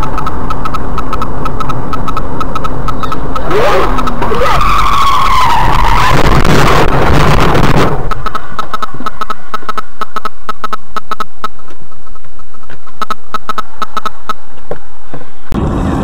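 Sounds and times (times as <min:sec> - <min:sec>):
irregular clicks: 0:00.0 - 0:04.3, 0:08.0 - 0:14.8
car tyres skidding: 0:03.3 - 0:09.5.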